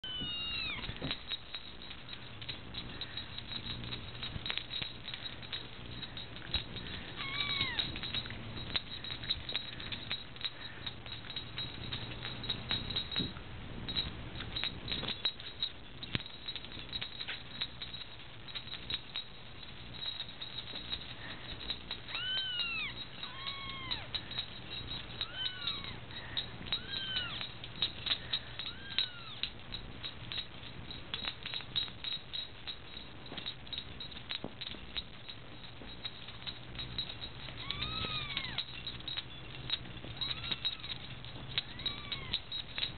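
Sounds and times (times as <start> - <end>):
kittens mewing: 0.0 - 1.0, 7.0 - 8.2, 22.1 - 24.4, 25.2 - 27.5, 28.5 - 29.5, 37.5 - 38.7, 40.1 - 42.6.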